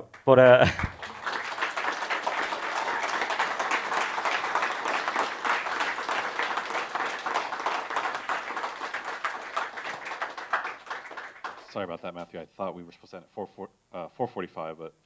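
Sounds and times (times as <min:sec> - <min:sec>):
audience clapping: 0:00.0 - 0:11.9.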